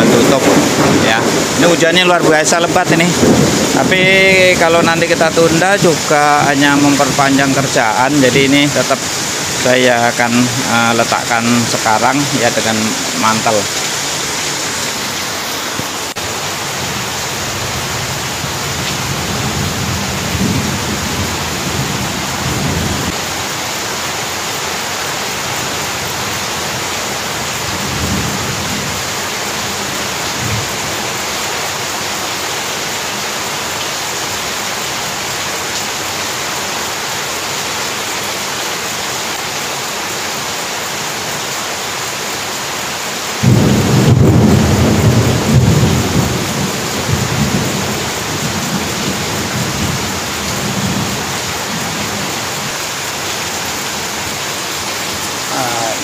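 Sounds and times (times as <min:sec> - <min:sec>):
low thunder rumbles: 0:00.0 - 0:07.7, 0:16.2 - 0:23.2, 0:27.6 - 0:29.0, 0:43.4 - 0:52.3
heavy rain pouring: 0:00.0 - 0:56.0.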